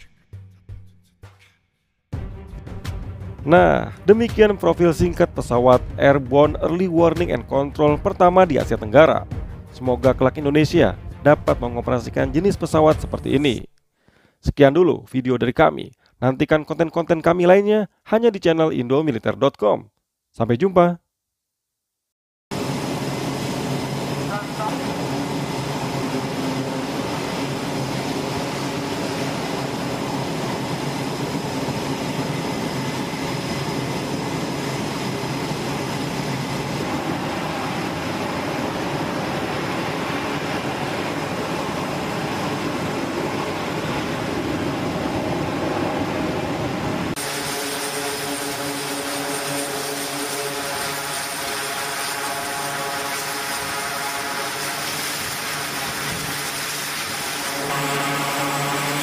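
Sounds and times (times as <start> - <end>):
aircraft engines running: 22.5 - 59.0
turboprop propellers droning: 22.5 - 59.0.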